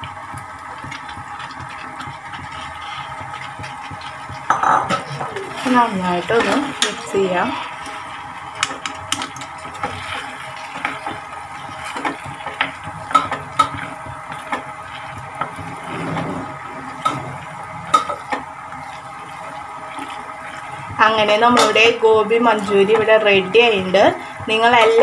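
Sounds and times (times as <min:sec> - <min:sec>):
spatula scraping metal pan: 0:15.5 - 0:17.4.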